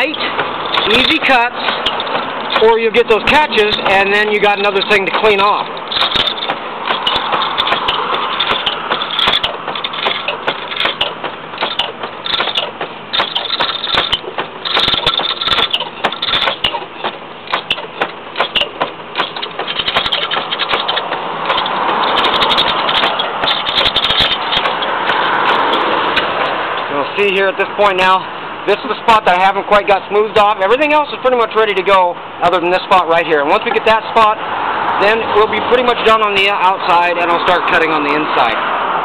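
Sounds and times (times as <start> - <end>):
gouge scraping spinning wood: 0.0 - 26.8
lathe clicks and rattles: 0.0 - 28.2.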